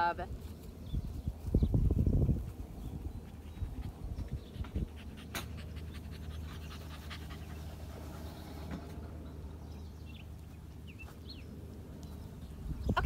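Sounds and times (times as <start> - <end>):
dog panting rapidly: 2.3 - 8.2.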